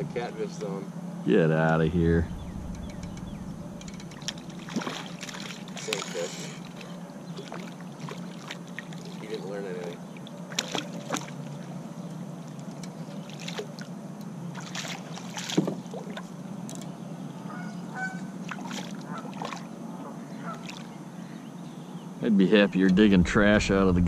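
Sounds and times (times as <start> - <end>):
fish splashing in water: 4.1 - 9.3, 10.2 - 11.6, 12.6 - 16.3, 18.4 - 19.8, 20.4 - 21.0.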